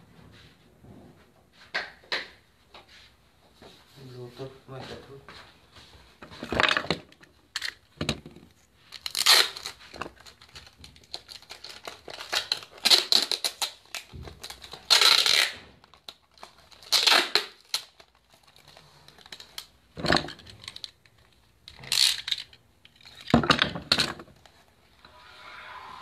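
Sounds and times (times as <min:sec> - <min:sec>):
packing materials tearing: 0:08.9 - 0:21.0, 0:21.7 - 0:23.3.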